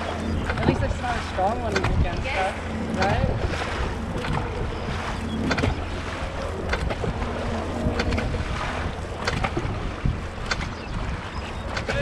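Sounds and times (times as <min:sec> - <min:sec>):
paddles splashing through water: 0:00.0 - 0:12.0
wind noise on microphone: 0:00.0 - 0:12.0.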